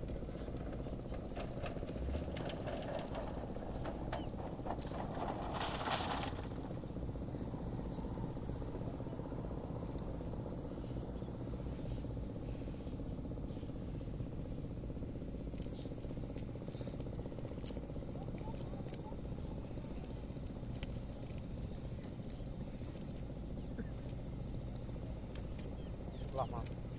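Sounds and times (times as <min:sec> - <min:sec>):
steady low rumble: 0:00.0 - 0:26.9
fishing net rustling: 0:13.7 - 0:23.3.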